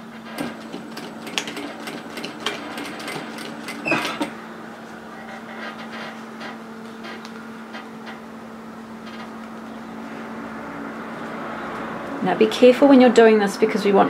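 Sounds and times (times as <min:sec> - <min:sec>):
sewing machine motor hum: 0:00.0 - 0:08.2.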